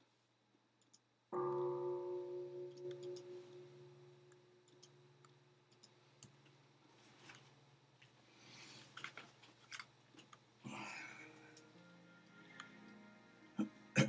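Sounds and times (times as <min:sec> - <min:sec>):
faint low hum: 0:00.0 - 0:14.0
handling clicks and rustles: 0:05.8 - 0:10.5.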